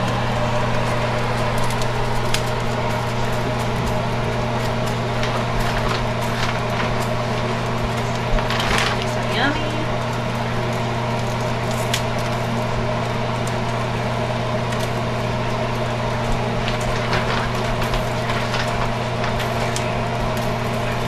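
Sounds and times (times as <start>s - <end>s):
steady machine hum: 0.0s - 21.0s
light clicks and cracks: 1.4s - 4.0s, 4.6s - 12.6s, 14.6s - 15.0s, 16.2s - 21.0s.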